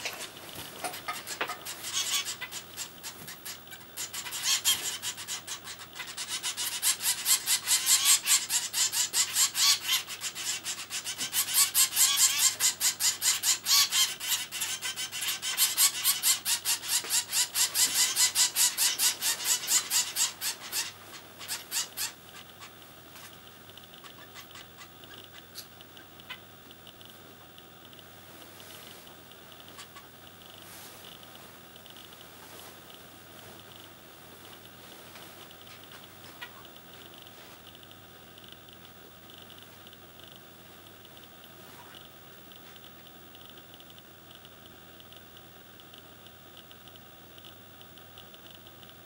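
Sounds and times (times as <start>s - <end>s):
nestlings begging calls: 0.0s - 22.8s, 23.8s - 26.5s, 29.7s - 30.1s.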